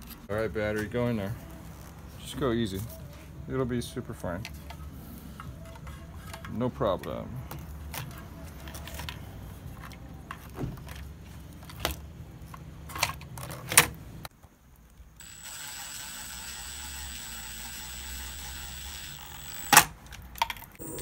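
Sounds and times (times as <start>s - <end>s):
faint high whine: 15.2s - 19.8s, 20.8s - 21.0s
low hum: 20.8s - 21.0s.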